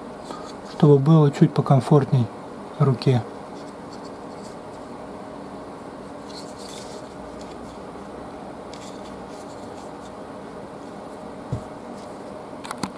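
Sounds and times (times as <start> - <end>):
steady low hum: 0.0 - 12.9
dull thump: 11.5 - 11.7.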